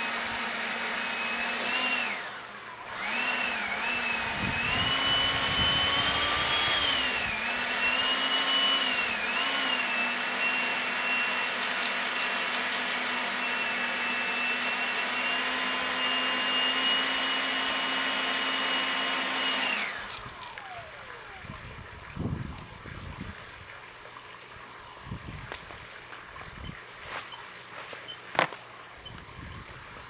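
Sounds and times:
wooden propeller whirring: 0.0 - 23.4
wind hiss: 3.7 - 8.1.

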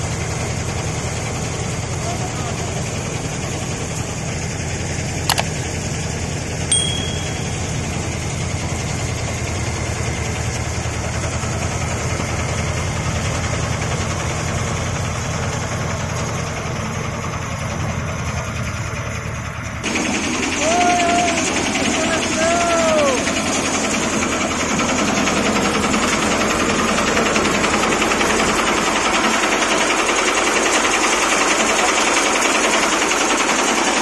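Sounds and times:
sharp click: 5.3 - 5.6
brief high tone: 6.7 - 8.5.

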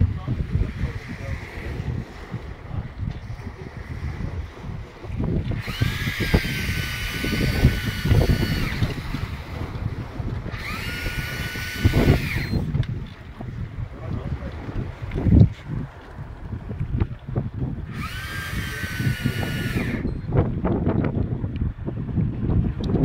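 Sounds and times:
sea rumble: 0.0 - 23.0
wind: 0.0 - 23.0
fishing reel whining: 0.3 - 2.7, 3.7 - 13.1, 17.8 - 20.4.

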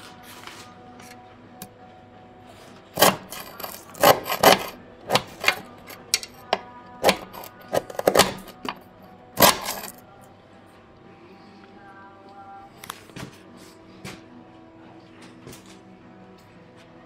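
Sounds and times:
metal bar scraping rusted metal: 3.0 - 8.8, 9.4 - 10.0.

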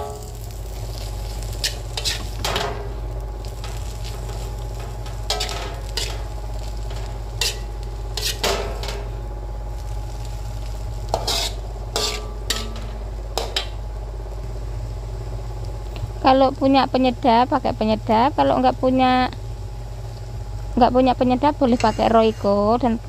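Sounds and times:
food sizzling: 0.0 - 23.0
metal spatula scraping a wok: 0.9 - 2.8, 3.7 - 9.1, 11.1 - 12.9.

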